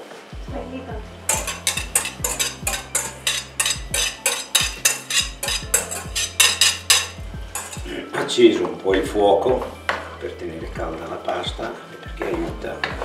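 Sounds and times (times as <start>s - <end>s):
whisk clicking against bowl: 1.3s - 7.9s.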